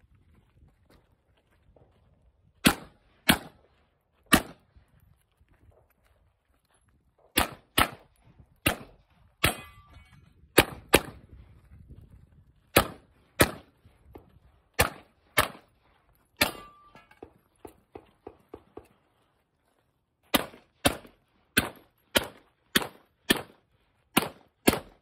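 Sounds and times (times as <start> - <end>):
pistol shots: 2.6 - 3.6, 4.3 - 4.6, 7.3 - 9.9, 10.5 - 11.2, 12.7 - 13.7, 14.8 - 15.7, 16.4 - 16.8, 20.3 - 25.0.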